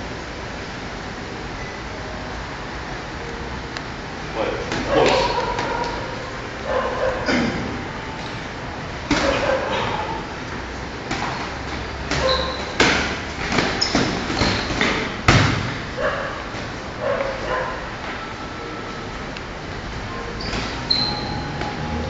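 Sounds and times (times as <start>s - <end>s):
sharp bark-like voice sounds: 4.8s - 6.1s
boxing gloves thudding: 11.0s - 15.9s
brief high squeaks: 20.4s - 21.8s.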